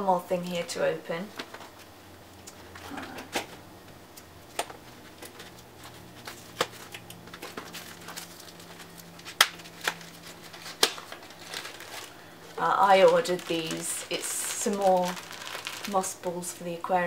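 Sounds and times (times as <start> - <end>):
mail packet rustling and tearing: 4.8 - 16.3.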